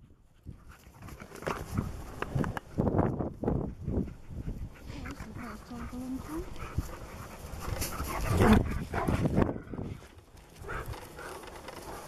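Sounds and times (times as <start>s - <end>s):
dog panting: 3.6s - 12.0s
dogs growling in play: 4.2s - 12.0s.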